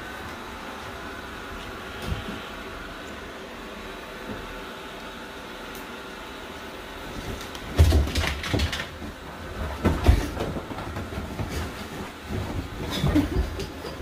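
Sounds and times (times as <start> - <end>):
dog thudding and scrabbling: 7.2 - 14.0.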